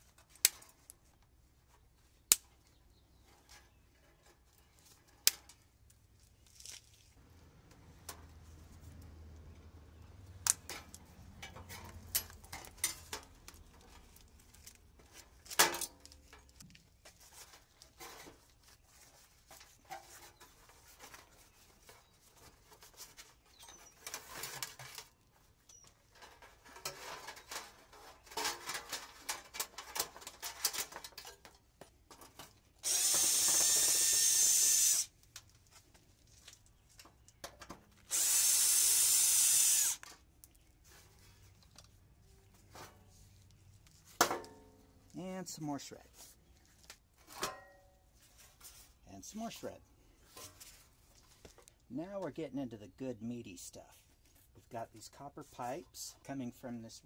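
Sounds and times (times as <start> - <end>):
wires and sheet metal handled: 10.4 - 32.7
cordless drill running: 32.8 - 35.1, 38.1 - 40.0.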